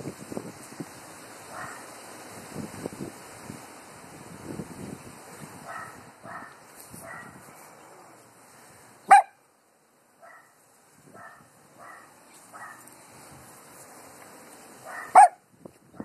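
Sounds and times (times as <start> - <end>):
small dogs barking: 1.5 - 1.9, 5.6 - 7.4, 9.1 - 9.4, 10.2 - 12.9, 14.8 - 15.4.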